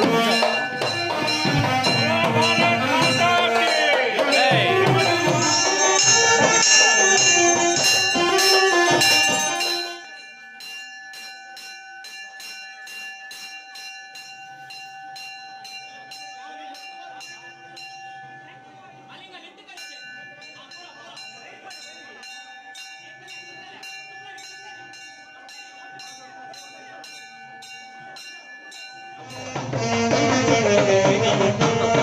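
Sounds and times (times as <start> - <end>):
traditional music with drums: 0.0 - 10.2, 29.2 - 32.0
hand bell ringing quickly: 0.0 - 18.5, 19.8 - 30.0.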